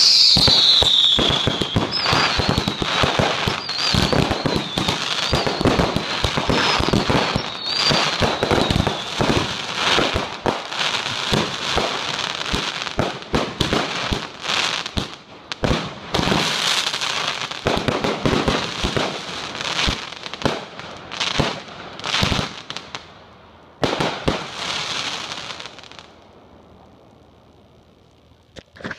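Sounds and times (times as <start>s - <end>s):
firework whistle: 0.0s - 10.1s
fireworks bangs and crackling: 0.0s - 26.4s.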